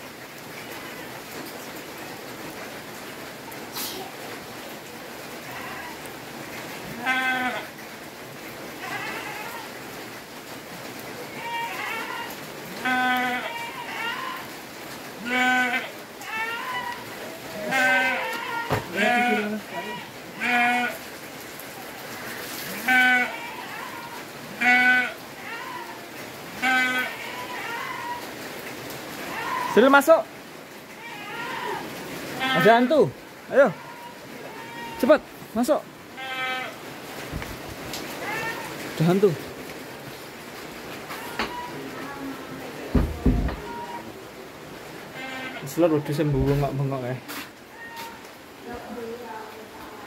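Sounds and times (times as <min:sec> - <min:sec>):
rain hissing: 0:00.0 - 0:50.0
goat bleating: 0:05.4 - 0:06.0, 0:06.9 - 0:07.7, 0:08.8 - 0:09.7, 0:11.3 - 0:14.5, 0:15.2 - 0:21.0, 0:22.2 - 0:26.0, 0:26.6 - 0:28.2, 0:29.2 - 0:29.8, 0:31.0 - 0:33.0, 0:33.7 - 0:35.1, 0:36.2 - 0:36.8, 0:38.2 - 0:38.8, 0:41.1 - 0:41.8, 0:43.0 - 0:44.2, 0:45.1 - 0:45.6, 0:47.3 - 0:48.2.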